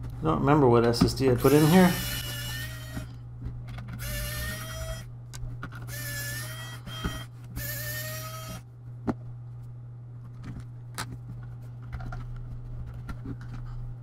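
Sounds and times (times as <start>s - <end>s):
electric screwdriver whirring: 1.4s - 3.1s, 4.0s - 5.0s, 5.9s - 8.6s.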